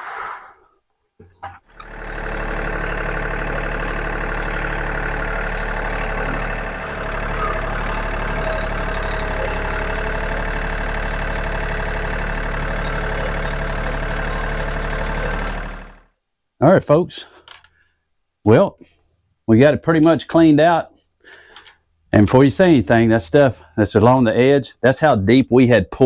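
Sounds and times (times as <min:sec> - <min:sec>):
tractor engine running: 0:01.4 - 0:16.1.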